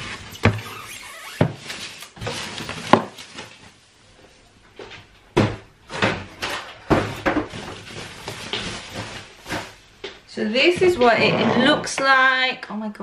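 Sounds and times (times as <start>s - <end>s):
cardboard and paper rustling: 1.4s - 3.8s, 6.4s - 9.9s.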